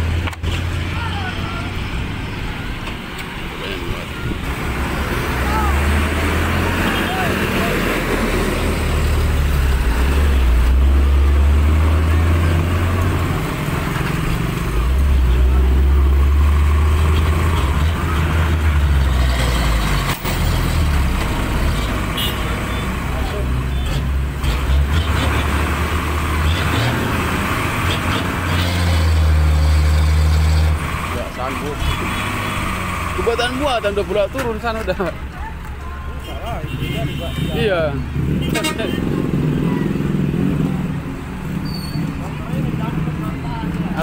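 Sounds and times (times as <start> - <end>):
street traffic noise: 0.0 - 44.0
motorcycles passing: 3.4 - 44.0.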